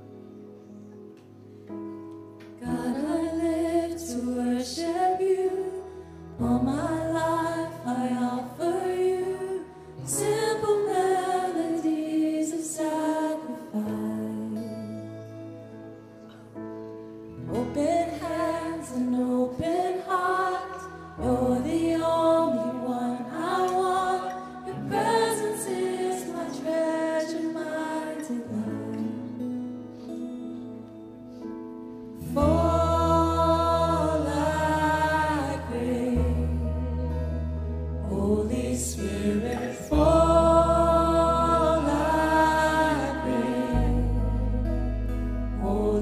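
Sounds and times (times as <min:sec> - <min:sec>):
guitars: 0:00.0 - 0:46.0
keyboard: 0:00.0 - 0:46.0
women singing: 0:02.6 - 0:15.0, 0:17.5 - 0:29.4, 0:32.2 - 0:44.8, 0:45.5 - 0:46.0
heavy bass: 0:32.3 - 0:46.0.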